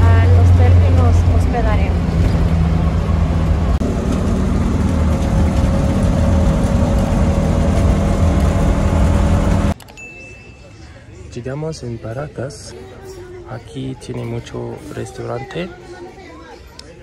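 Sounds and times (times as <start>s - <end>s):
car engine drone: 0.0s - 9.8s.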